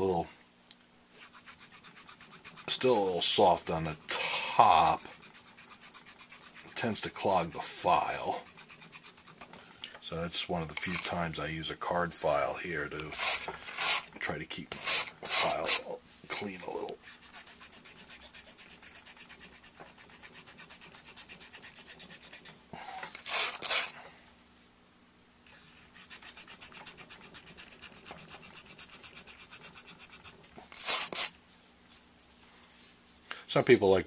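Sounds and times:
file on wire bristles ticking: 0:01.1 - 0:09.5, 0:10.7 - 0:11.1, 0:12.9 - 0:14.1, 0:14.7 - 0:15.8, 0:16.8 - 0:23.9, 0:25.5 - 0:31.3
harsh scrapes: 0:12.8 - 0:14.1, 0:14.7 - 0:15.9, 0:25.5 - 0:31.3.

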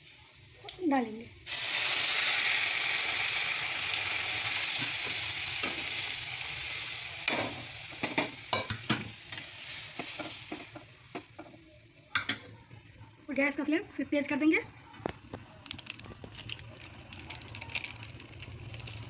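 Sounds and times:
hot oil sizzling in a pan: 0:00.0 - 0:12.5.

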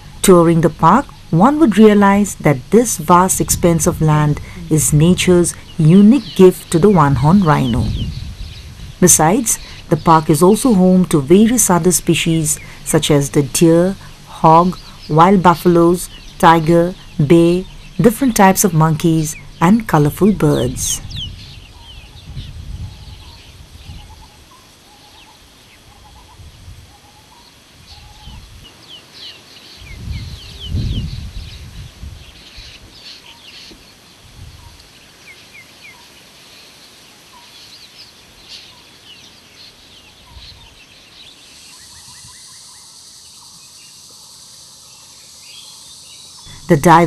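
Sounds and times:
crickets buzzing: 0:00.0 - 0:26.3, 0:40.8 - 0:47.0
birds chirping: 0:00.0 - 0:47.0
low rumble: 0:03.4 - 0:10.0, 0:14.0 - 0:23.2.

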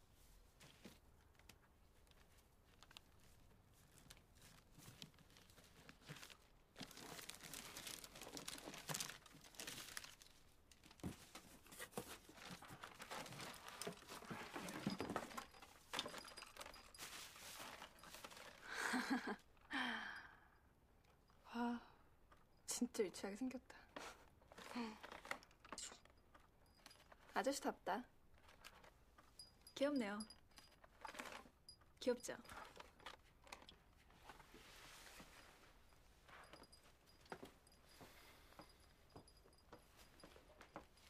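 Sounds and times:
wrapping paper rustling and tearing: 0:02.1 - 0:11.0
woman's voice: 0:22.7 - 0:23.9, 0:27.4 - 0:28.1, 0:29.8 - 0:30.3, 0:32.0 - 0:32.5.

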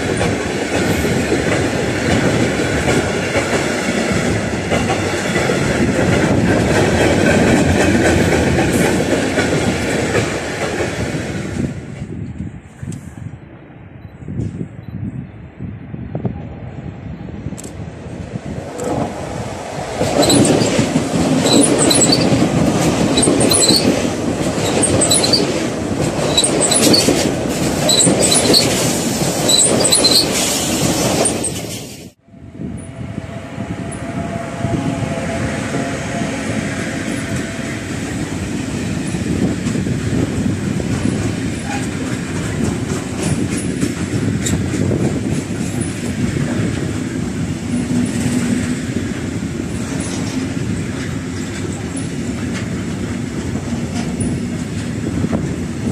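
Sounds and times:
freight train rumbling past: 0:00.0 - 0:55.9
high-speed train passing: 0:00.0 - 0:55.9
high-pitched wheel squeaks: 0:20.2 - 0:20.8, 0:21.4 - 0:22.4, 0:23.2 - 0:24.0, 0:24.6 - 0:25.5, 0:26.3 - 0:27.2, 0:27.8 - 0:32.0.

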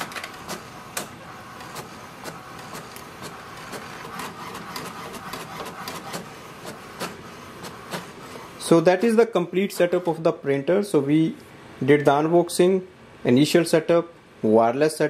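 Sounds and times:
sharp printer clicks: 0:00.0 - 0:10.2
printer whirring: 0:00.0 - 0:11.0.

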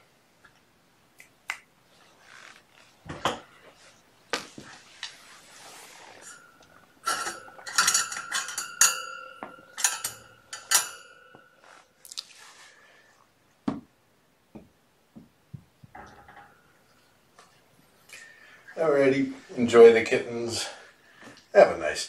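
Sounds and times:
dish clinking: 0:06.2 - 0:11.8, 0:15.9 - 0:17.0.

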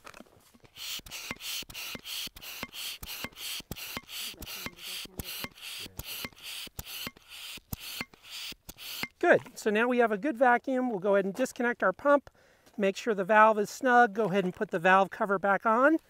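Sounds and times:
hand vacuum pump strokes: 0:00.5 - 0:09.2.

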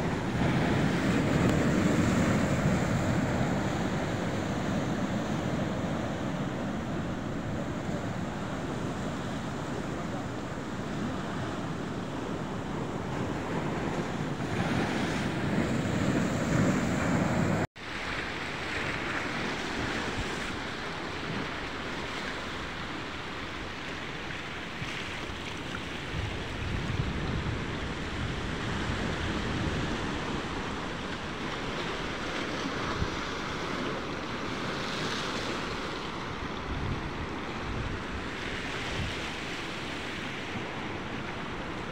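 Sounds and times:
waves on rocky shore: 0:00.0 - 0:41.9
wind buffeting microphone: 0:26.0 - 0:34.8, 0:35.6 - 0:41.9.

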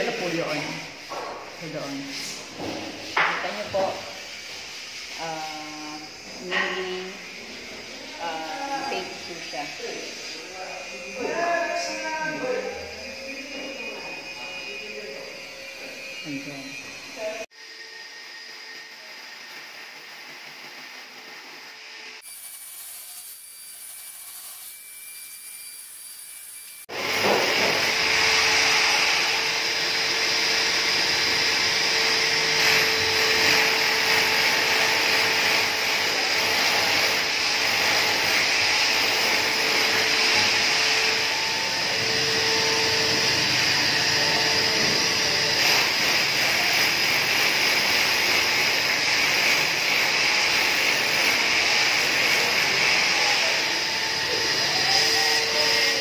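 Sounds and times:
electric drill boring into wall: 0:00.0 - 0:56.0.

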